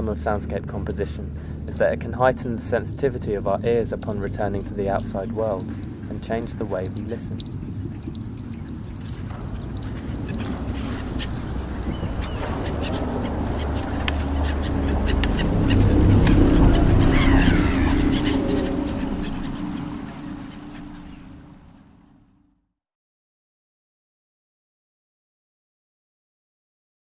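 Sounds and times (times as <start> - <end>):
low rumble: 0.4 - 22.0
bird calls: 8.7 - 21.9.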